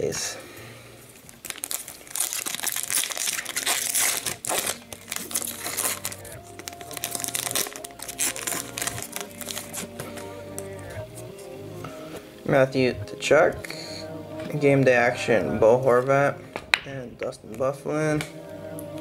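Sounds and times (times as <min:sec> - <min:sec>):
background music: 0:00.0 - 0:19.0
foil wrapper crinkling: 0:01.1 - 0:10.8.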